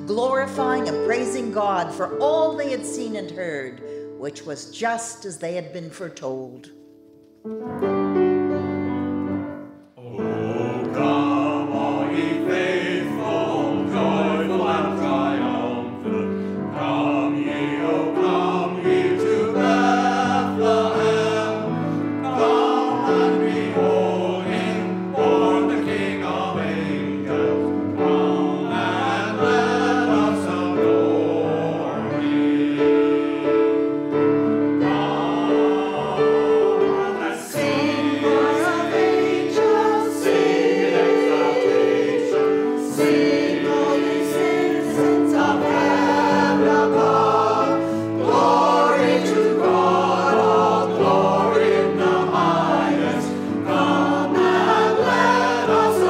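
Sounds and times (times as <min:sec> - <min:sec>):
piano accompaniment: 0:00.0 - 0:56.0
choir singing: 0:09.6 - 0:56.0.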